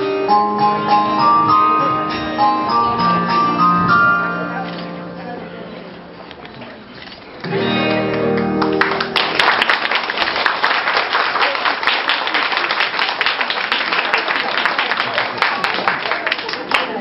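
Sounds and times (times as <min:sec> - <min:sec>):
audience applause: 0:08.4 - 0:17.0.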